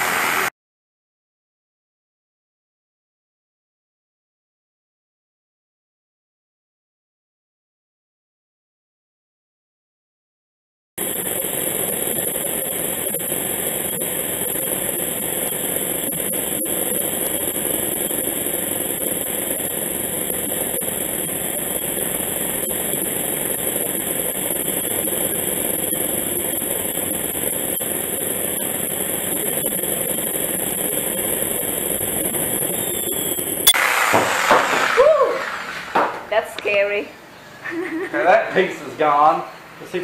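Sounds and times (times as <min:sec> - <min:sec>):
reciprocating saw cutting log: 0:32.7 - 0:36.1.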